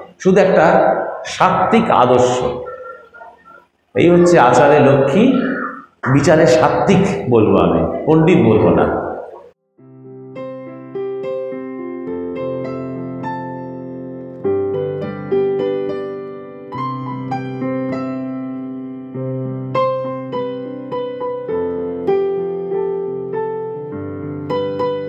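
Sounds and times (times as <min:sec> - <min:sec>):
slow solo piano: 0:08.9 - 0:25.0.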